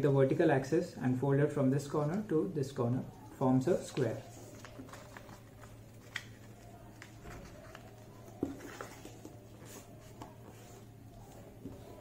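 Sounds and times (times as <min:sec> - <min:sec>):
paper rustling and scraping: 0:03.9 - 0:12.0.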